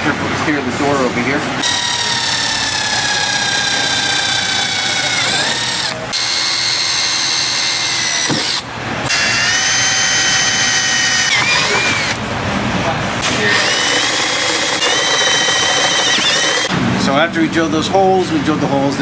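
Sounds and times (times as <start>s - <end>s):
cordless drill boring through sheet metal: 1.6s - 12.2s, 13.4s - 16.7s.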